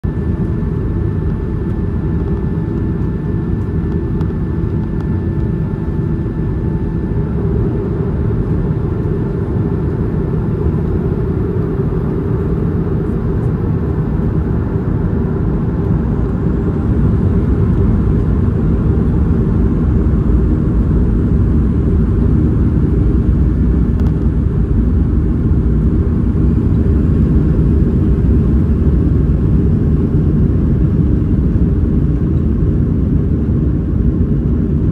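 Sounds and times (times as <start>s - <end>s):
jet engine low rumble: 0.0s - 34.9s.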